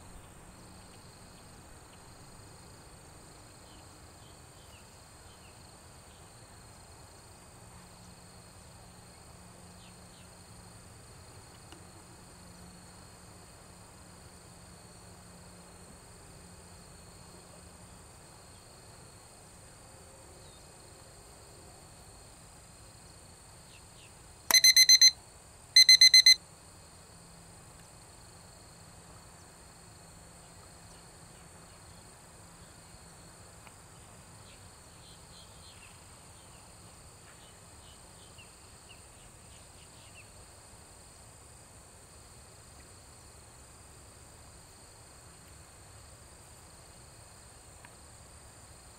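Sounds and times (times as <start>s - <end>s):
insect drone: 0.0s - 48.9s
short electronic beeps: 24.5s - 25.2s, 25.8s - 26.4s.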